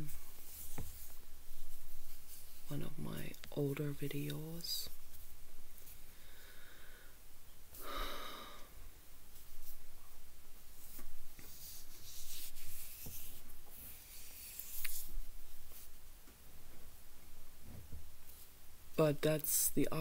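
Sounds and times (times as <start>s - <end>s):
short breathy sound: 7.8s - 8.8s.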